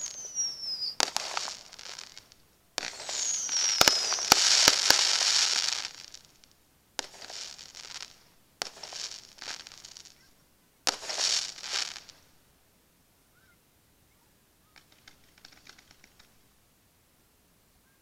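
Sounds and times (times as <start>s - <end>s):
firework shells bursting: 0.0s - 10.2s, 10.9s - 12.2s
firework crackling: 0.0s - 12.3s, 14.8s - 16.4s.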